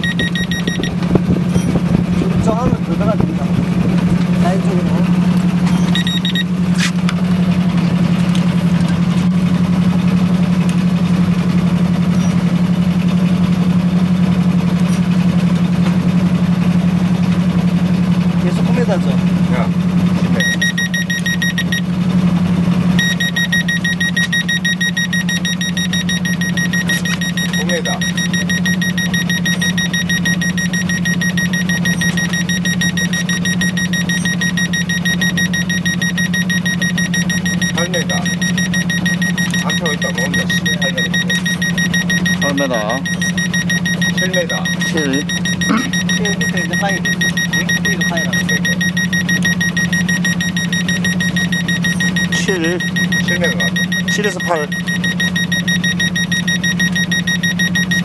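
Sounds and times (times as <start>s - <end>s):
alarm beeping rapidly: 0.0s - 1.0s, 5.8s - 6.5s, 20.4s - 21.9s, 23.0s - 58.0s
boat engine pulsing hum: 0.0s - 58.0s.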